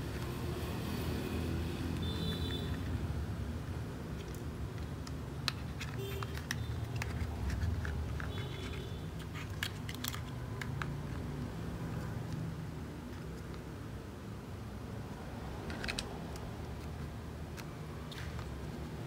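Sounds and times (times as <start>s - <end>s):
plastic toy parts clicking: 4.1s - 11.3s, 15.6s - 18.8s.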